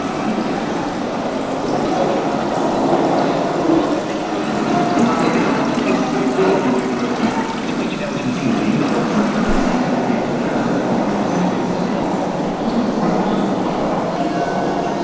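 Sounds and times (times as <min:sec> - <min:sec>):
water splashing in metal tub: 0:00.1 - 0:09.8.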